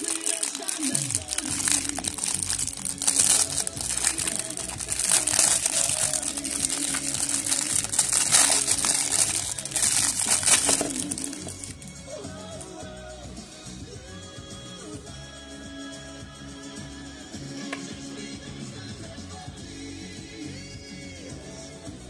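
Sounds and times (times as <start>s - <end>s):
plastic bag crinkling: 0.0s - 11.8s.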